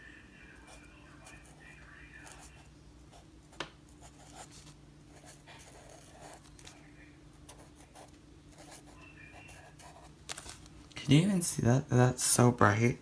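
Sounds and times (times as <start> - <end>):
faint steady hum: 0.0 - 13.0
marker scratching on paper: 4.0 - 6.7.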